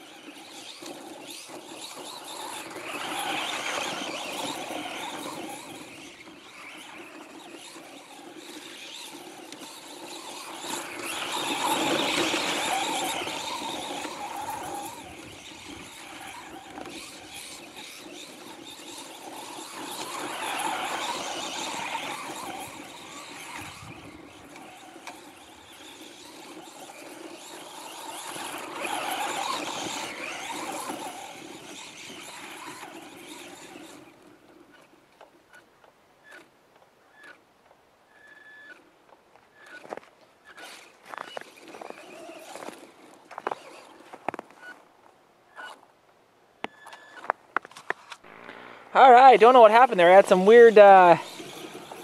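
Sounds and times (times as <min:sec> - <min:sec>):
toy truck electric motor whining: 0:00.0 - 0:36.5, 0:37.1 - 0:37.4, 0:38.1 - 0:38.9, 0:39.5 - 0:44.8, 0:45.5 - 0:45.8, 0:46.6 - 0:49.0, 0:50.1 - 0:52.0.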